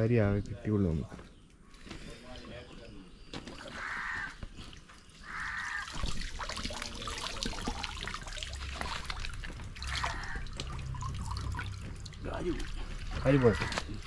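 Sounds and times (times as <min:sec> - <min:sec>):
water splashing and trickling: 0:00.0 - 0:14.0
wading splashes: 0:03.3 - 0:14.0.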